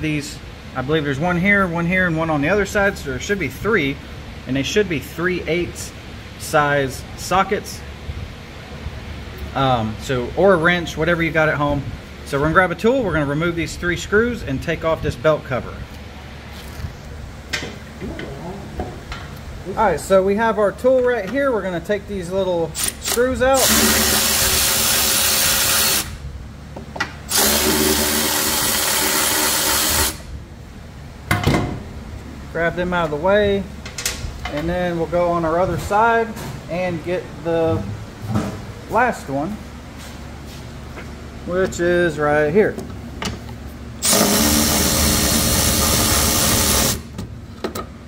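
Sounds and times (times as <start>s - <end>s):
cordless electric ratchet running: 22.8s - 26.2s, 27.3s - 30.2s, 44.0s - 47.1s.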